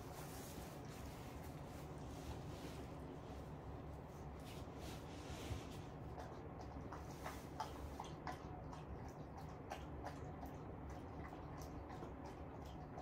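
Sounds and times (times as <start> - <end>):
dog eating wet mouth sounds: 4.0 - 13.0.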